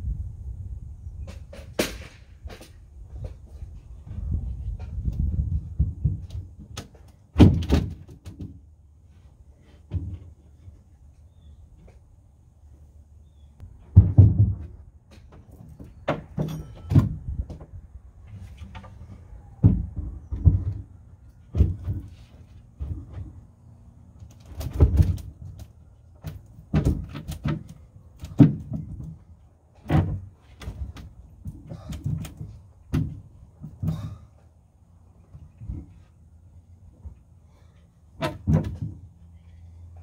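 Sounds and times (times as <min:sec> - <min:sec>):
wooden boards knocking: 0:13.8 - 0:17.6.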